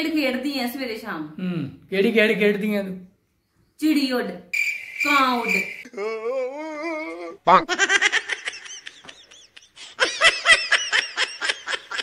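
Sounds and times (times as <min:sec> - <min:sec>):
drawn-out wavering voice: 0:05.8 - 0:07.7
high-pitched laughter: 0:05.9 - 0:12.0.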